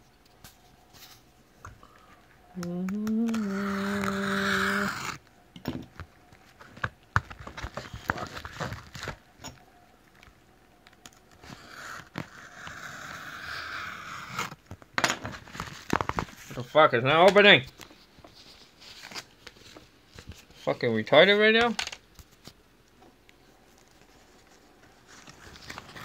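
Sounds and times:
fingers scratching packing tape: 0:02.9 - 0:05.2, 0:11.4 - 0:14.6.

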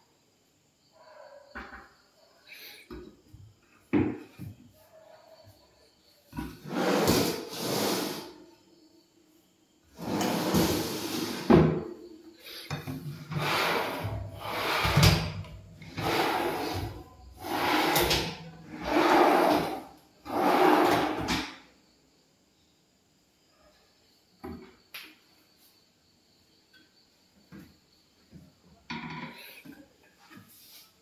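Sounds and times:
drawers sliding on runners: 0:06.4 - 0:08.4, 0:10.0 - 0:11.8, 0:12.8 - 0:21.5.

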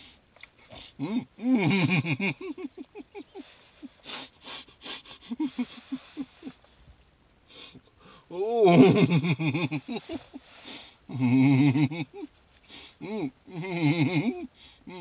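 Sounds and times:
wheezy breaths: 0:00.0 - 0:01.1, 0:03.3 - 0:06.8, 0:07.4 - 0:08.3, 0:09.9 - 0:11.2, 0:12.6 - 0:13.2, 0:14.5 - 0:15.0
man laughing: 0:01.0 - 0:06.6, 0:08.3 - 0:12.4, 0:13.0 - 0:15.0.

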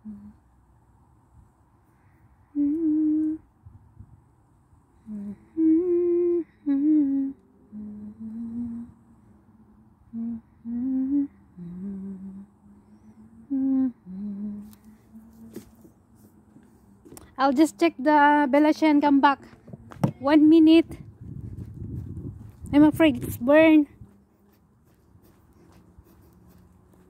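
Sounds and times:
person humming: 0:00.0 - 0:00.5, 0:02.4 - 0:03.5, 0:05.0 - 0:15.8.

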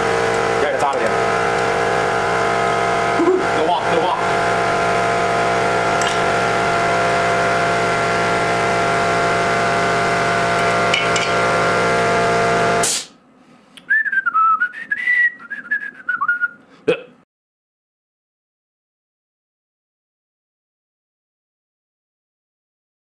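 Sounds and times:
electric machine humming: 0:00.0 - 0:13.1
man whistling: 0:13.8 - 0:16.6.

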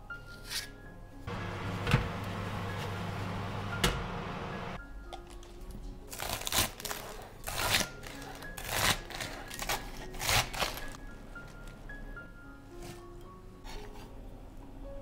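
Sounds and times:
soft background music: 0:00.0 - 0:15.0
knife cutting crisp lettuce: 0:06.1 - 0:11.0.

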